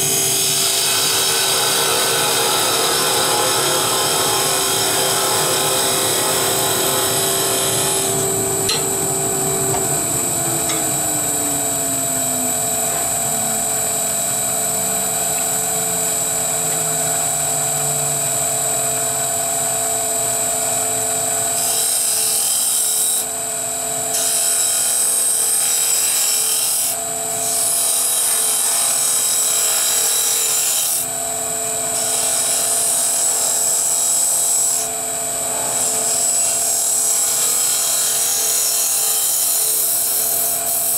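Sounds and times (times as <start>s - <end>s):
wood lathe whine: 0.0s - 40.9s
lower tone sliding down: 8.4s - 14.4s.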